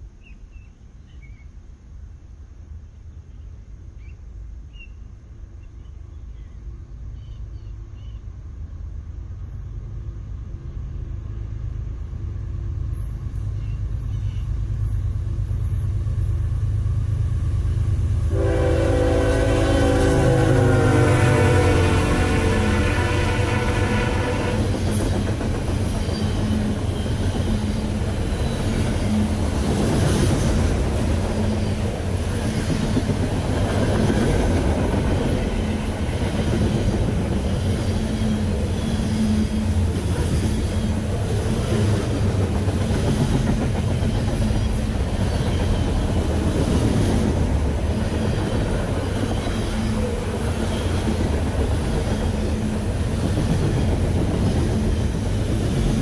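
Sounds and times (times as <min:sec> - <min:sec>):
train wheels rumbling on rail: 0:07.2 - 0:56.0
wheels clacking over rail joints: 0:21.8 - 0:56.0.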